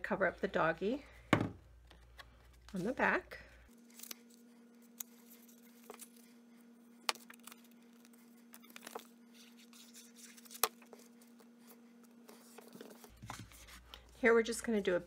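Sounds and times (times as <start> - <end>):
steady faint hum: 0.0 - 15.0.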